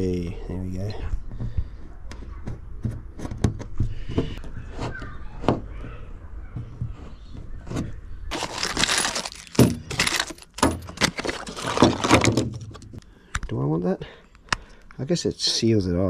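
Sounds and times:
loud crackly rustling: 8.3s - 13.0s
small hard parts clinking: 8.3s - 13.1s.

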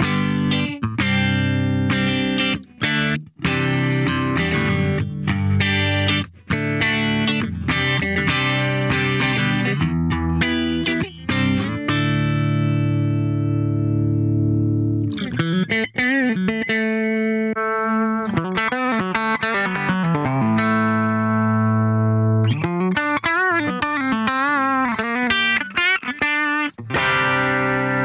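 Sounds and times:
electric guitar lead line: 0.0s - 28.0s.

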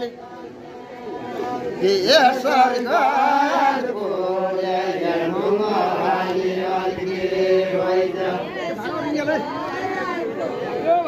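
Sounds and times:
men singing folk song: 1.2s - 9.4s.

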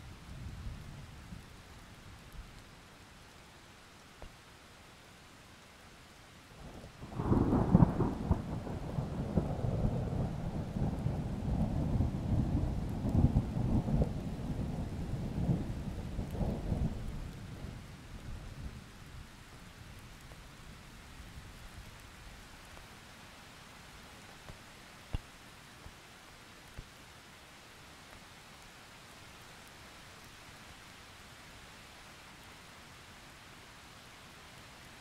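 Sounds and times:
faint rain hiss: 0.0s - 35.0s
thunder crack and rumble: 7.0s - 17.8s.

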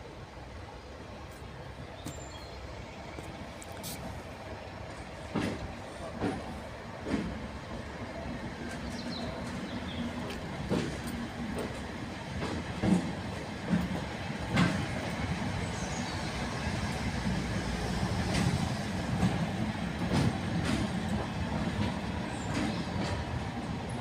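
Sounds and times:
diesel locomotive engine drone: 0.0s - 24.0s.

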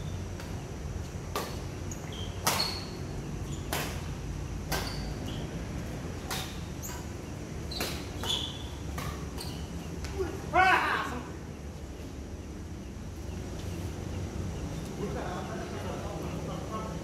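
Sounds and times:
outdoor background hum: 0.0s - 17.0s
rackets hitting shuttlecock: 0.3s - 10.3s
shoe squeaks: 1.4s - 4.1s, 4.7s - 5.7s, 6.3s - 10.1s.

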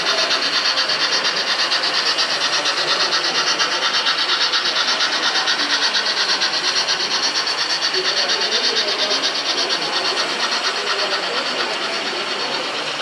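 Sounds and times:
model steam train running: 0.0s - 13.0s.

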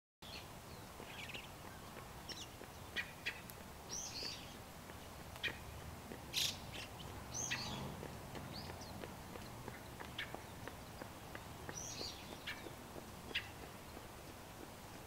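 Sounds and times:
songbirds calling: 0.2s - 15.0s.

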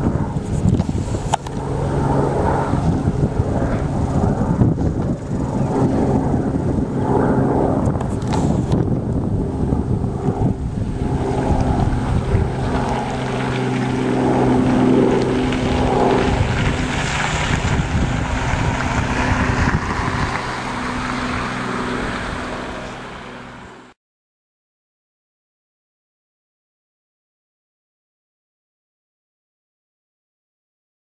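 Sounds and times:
wind rumbling on microphone: 0.0s - 23.9s
helicopter rotor and engine drone: 0.0s - 24.0s.

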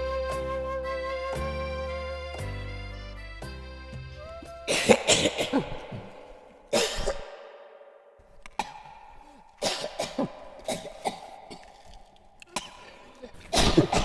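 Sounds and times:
person coughing: 4.7s - 7.4s, 8.5s - 11.9s, 12.5s - 14.0s.

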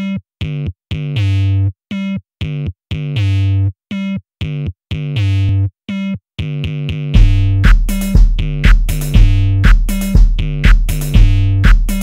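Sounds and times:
synthesizer chords: 4.4s - 12.0s.

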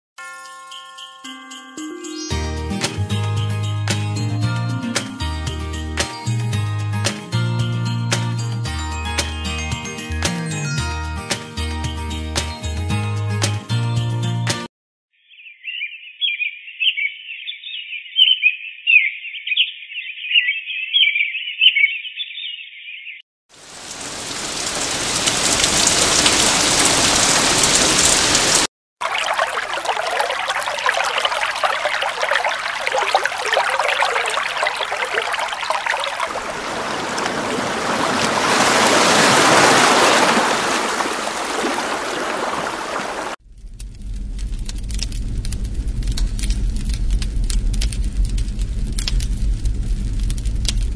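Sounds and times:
birdsong chirping: 15.2s - 23.2s
brook babbling: 23.6s - 43.4s
bonfire crackling: 23.6s - 50.9s.

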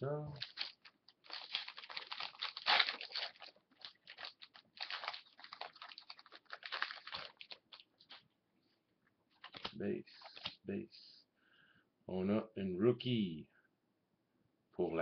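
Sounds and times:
foil wrapper crinkling: 0.4s - 8.2s, 9.4s - 10.5s.

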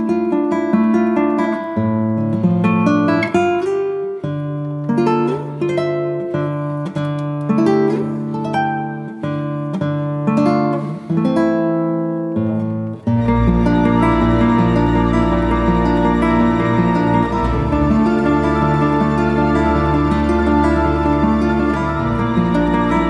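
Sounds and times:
acoustic guitar plucking: 0.0s - 23.0s.

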